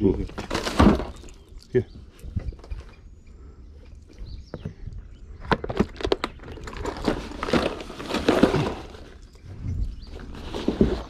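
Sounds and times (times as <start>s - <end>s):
rummaging in a backpack: 5.5s - 11.0s.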